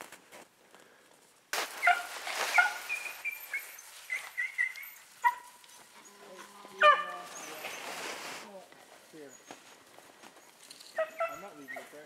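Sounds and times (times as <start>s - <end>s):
beagles baying: 1.8s - 8.0s, 10.3s - 12.0s.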